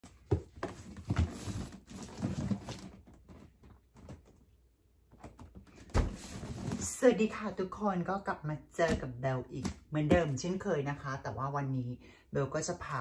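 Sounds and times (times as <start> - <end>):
cardboard box scraping and rustling: 0.5 - 3.1, 6.1 - 6.8.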